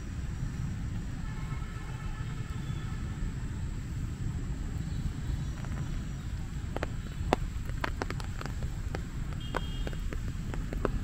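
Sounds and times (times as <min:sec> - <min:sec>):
steady low rumble: 0:00.0 - 0:11.0
raindrops tapping on umbrella: 0:05.4 - 0:11.0.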